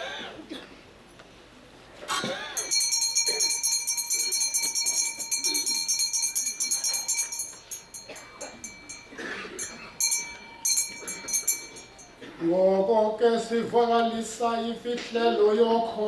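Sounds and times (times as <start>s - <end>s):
small altar bells jingling: 2.6s - 12.4s.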